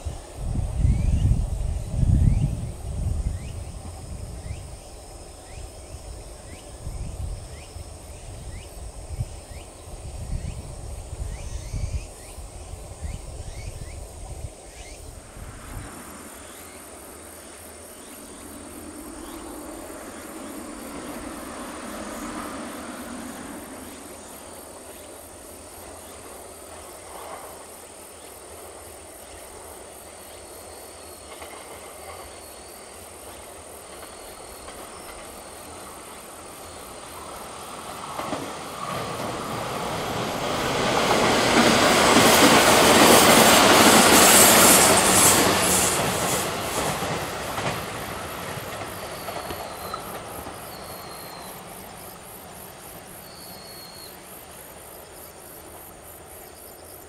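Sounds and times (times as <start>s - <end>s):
wind buffeting microphone: 0.0s - 16.5s
insects chirping: 0.0s - 57.0s
electric train running: 31.2s - 53.4s.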